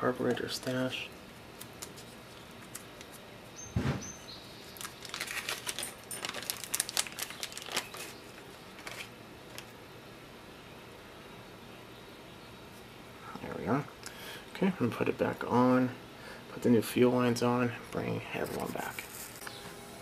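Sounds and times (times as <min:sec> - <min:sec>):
thump: 0:03.7 - 0:04.1
plastic bag crinkling: 0:04.6 - 0:09.7.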